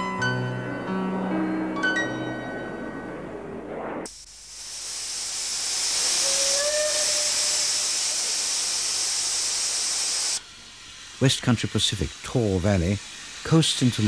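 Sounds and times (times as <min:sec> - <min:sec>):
steam locomotive venting steam: 0:03.8 - 0:14.0.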